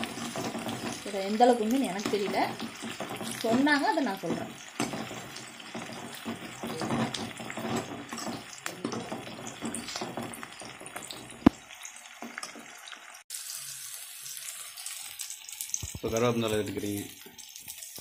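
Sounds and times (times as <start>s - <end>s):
ladle scraping a pan: 0.0s - 11.6s
shallots sizzling in hot oil: 0.0s - 18.0s.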